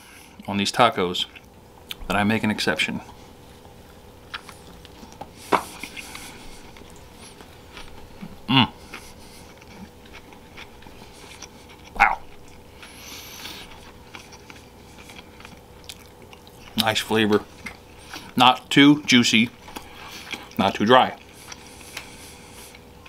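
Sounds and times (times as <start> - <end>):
faint steady hum: 0.0 - 23.0
man chewing food: 1.2 - 2.1, 3.0 - 23.0.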